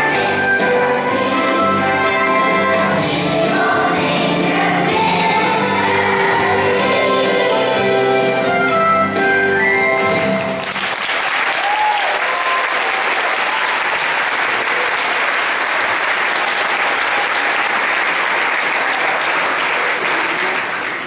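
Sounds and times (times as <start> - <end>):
music notes: 0.0 - 10.7
audience applauding: 9.6 - 21.0.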